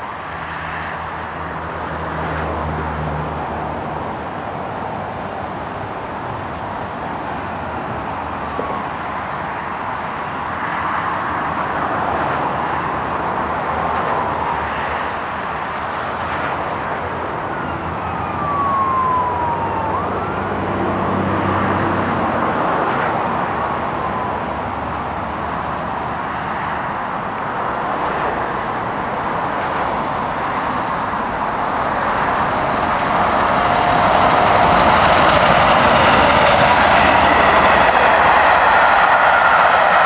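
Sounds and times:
wailing siren: 8.2s - 9.4s, 14.0s - 15.0s, 17.2s - 25.5s, 29.6s - 40.0s
steam locomotive exhaust rushing: 32.0s - 40.0s.

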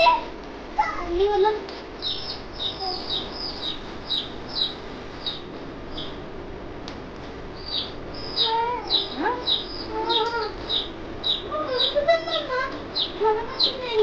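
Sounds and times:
small child talking: 0.0s - 1.7s, 2.6s - 3.2s, 8.4s - 10.6s, 11.4s - 14.0s
chick peeping: 2.0s - 6.2s, 7.6s - 14.0s.

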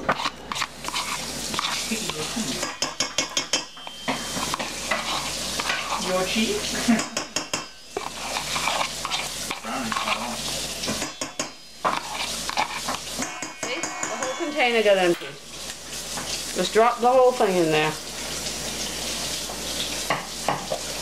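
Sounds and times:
meat sizzling in frying pan: 0.0s - 21.0s
wire whisk clinking in bowl: 2.0s - 5.0s
plastic tub scraping steel bowl: 8.0s - 11.0s, 11.9s - 15.4s.

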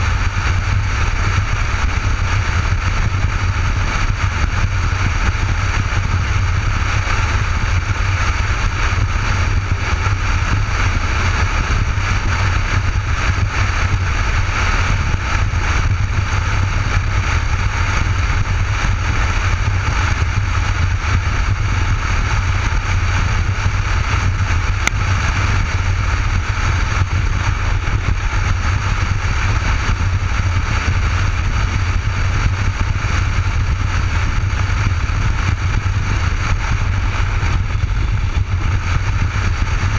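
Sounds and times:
motorcycle engine running: 0.0s - 39.9s
wind rush: 0.0s - 39.9s.

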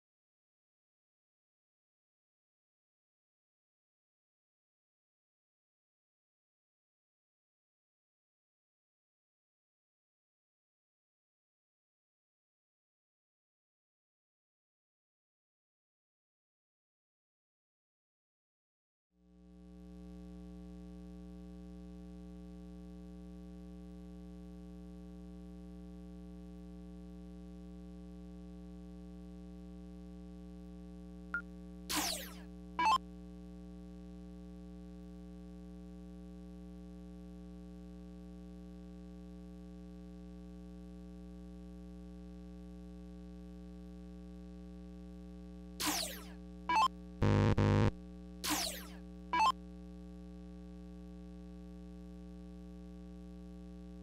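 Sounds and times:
falling electronic chirps: 31.9s - 33.0s, 45.8s - 49.5s
electrical mains hum: 45.0s - 50.7s.

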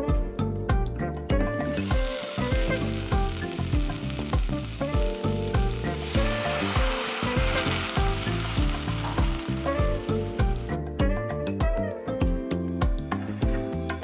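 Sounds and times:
background music with steady beat: 0.0s - 14.0s
fruit sizzling in a hot pot: 1.5s - 10.7s.

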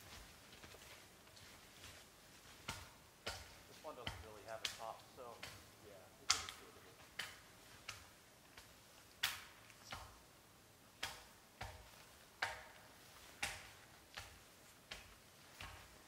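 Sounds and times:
axe chopping wood: 2.6s - 8.0s, 11.0s - 15.8s.

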